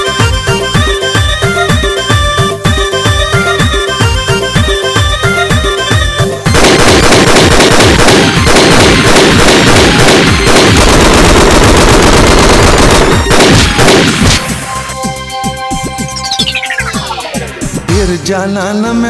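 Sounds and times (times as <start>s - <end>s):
rapid cracking bangs: 6.5s - 14.7s.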